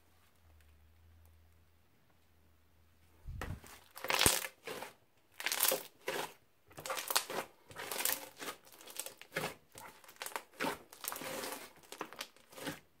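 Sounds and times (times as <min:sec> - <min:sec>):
crunchy slime being squeezed: 0:03.6 - 0:12.7.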